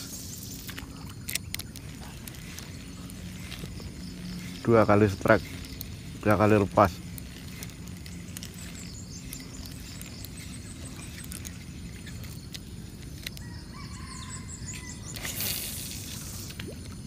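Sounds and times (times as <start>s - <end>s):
birds chirping: 0.0s - 17.0s
low outdoor rumble: 0.0s - 17.0s
rustling hiss: 0.0s - 17.0s.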